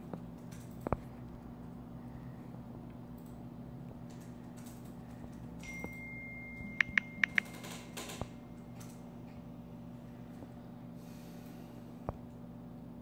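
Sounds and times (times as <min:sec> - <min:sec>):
low steady hum: 0:00.0 - 0:13.0
thin steady tone: 0:05.6 - 0:09.0
phone keyboard clicks: 0:06.7 - 0:09.0.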